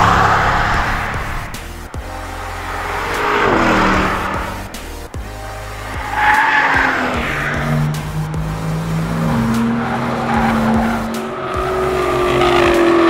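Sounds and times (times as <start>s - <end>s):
background music: 0.0s - 13.0s
car engine at high revs: 0.0s - 13.0s
tyres squealing: 0.0s - 13.0s.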